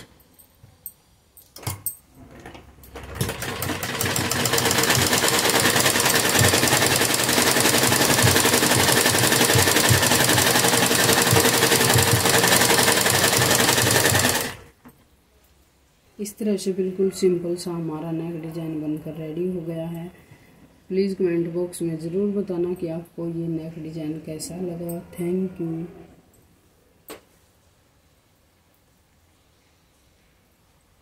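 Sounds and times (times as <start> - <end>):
sewing machine stitching: 1.6 - 14.7.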